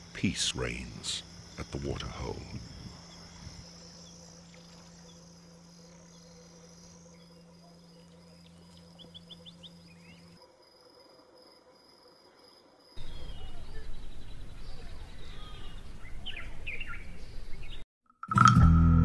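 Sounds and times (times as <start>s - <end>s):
crickets and insects trilling: 0.0s - 16.4s
bird calls: 1.1s - 10.4s, 13.0s - 17.8s.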